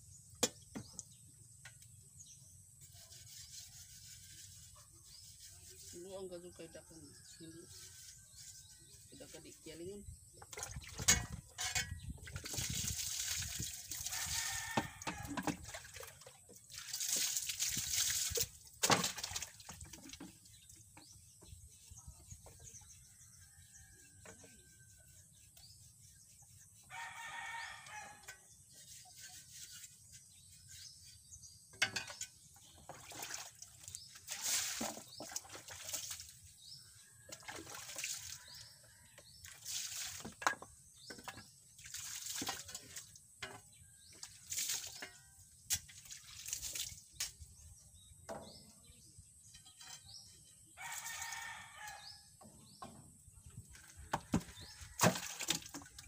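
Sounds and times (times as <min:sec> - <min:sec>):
water splashing in a tub: 0:10.4 - 0:20.8, 0:32.6 - 0:43.3, 0:44.1 - 0:47.4, 0:53.7 - 0:56.0.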